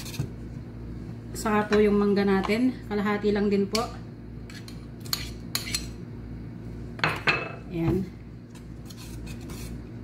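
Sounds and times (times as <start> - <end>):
metal spoon clinking and scraping: 4.5 - 6.0.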